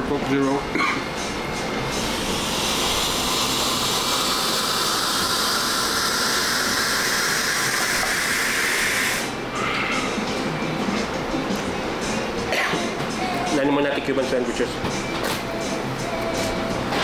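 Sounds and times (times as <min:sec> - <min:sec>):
loud steady hiss: 0:01.8 - 0:09.4.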